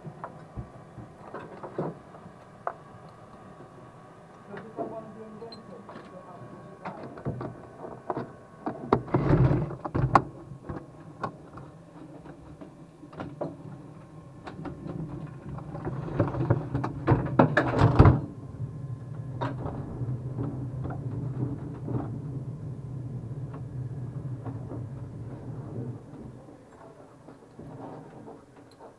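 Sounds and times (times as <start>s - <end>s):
steady low hum: 0.0s - 28.9s.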